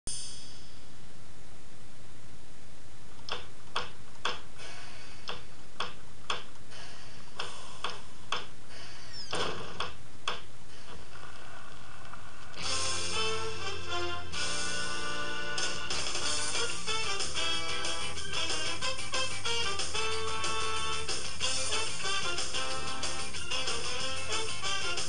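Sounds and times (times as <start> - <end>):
low hum: 0.1 - 23.0.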